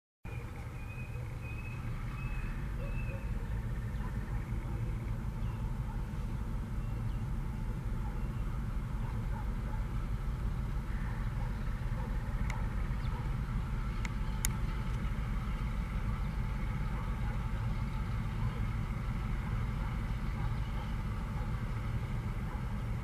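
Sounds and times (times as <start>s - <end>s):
diesel locomotive engine rumble: 0.3s - 23.0s.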